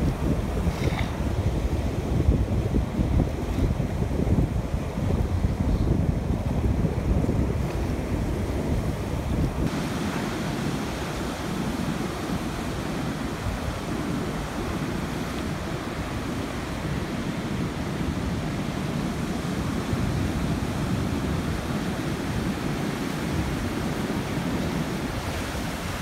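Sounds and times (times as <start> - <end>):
wind buffeting microphone: 0.0 - 26.0
surf breaking on rocks: 9.6 - 26.0.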